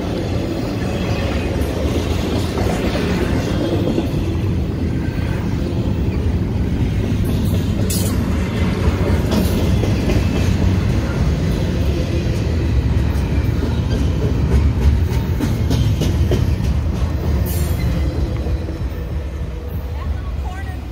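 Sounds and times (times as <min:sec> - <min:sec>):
freight train wheels rumbling: 0:00.0 - 0:20.9.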